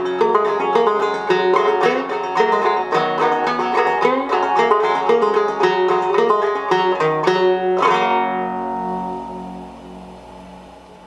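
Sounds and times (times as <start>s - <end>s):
banjo chord ringing: 0.0s - 11.0s
banjo plucked notes: 0.0s - 11.0s.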